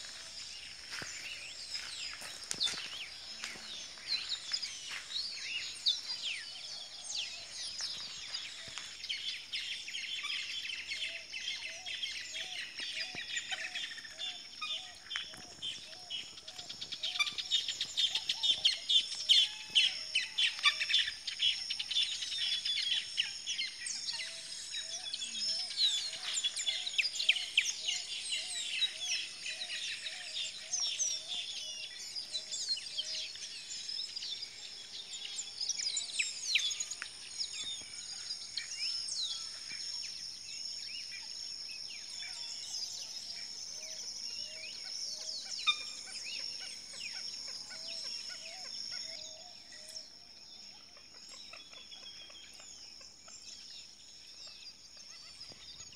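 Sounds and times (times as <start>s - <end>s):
birds chirping in chorus: 0.0s - 55.9s.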